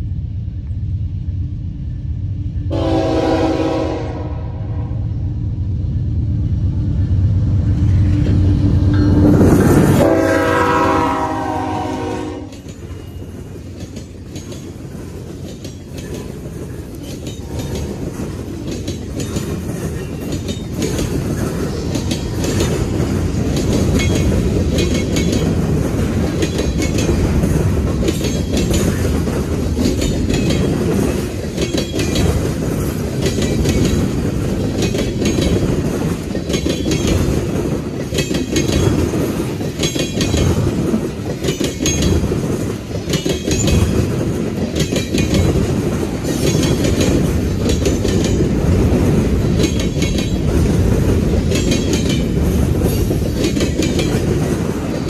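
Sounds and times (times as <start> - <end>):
locomotive horn: 2.7 - 5.2, 9.9 - 12.6
freight cars rumbling past: 4.5 - 41.4
steel wheels clacking on rail joints: 7.7 - 55.0.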